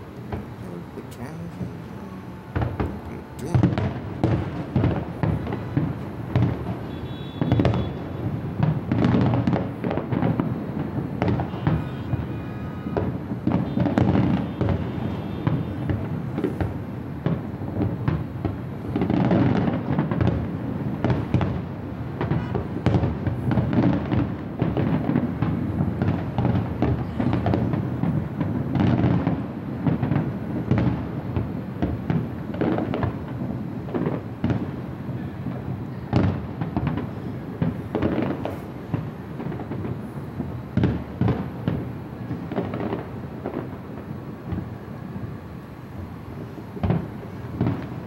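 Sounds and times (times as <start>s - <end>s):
continuous low rumble: 0.0s - 8.9s
firework shells booming: 0.2s - 0.8s, 2.5s - 44.8s, 46.4s - 48.0s.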